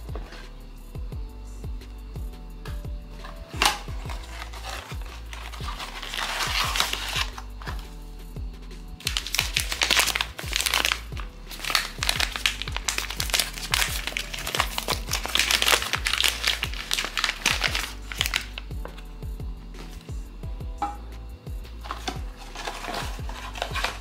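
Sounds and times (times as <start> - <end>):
background music: 0.0 - 24.0
packaging crinkling: 3.2 - 7.9, 9.0 - 19.0, 21.8 - 24.0.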